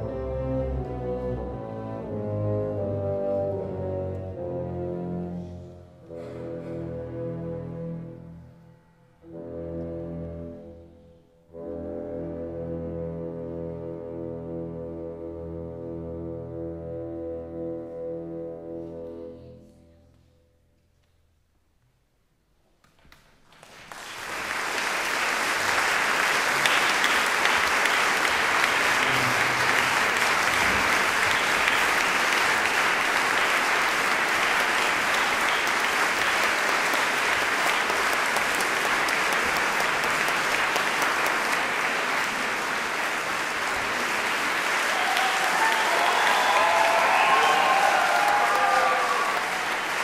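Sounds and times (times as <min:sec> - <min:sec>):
audience applause: 0:23.4 - 0:50.0
pitched calls from audience: 0:44.4 - 0:50.0.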